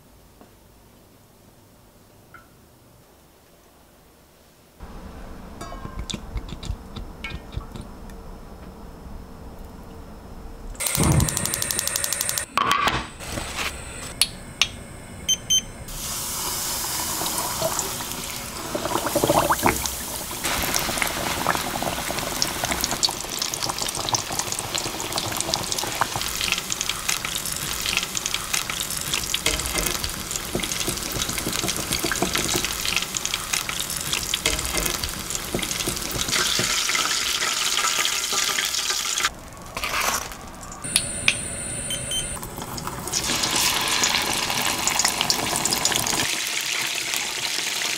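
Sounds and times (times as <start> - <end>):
oil sizzling and crackling: 15.9 - 41.0, 42.3 - 47.9.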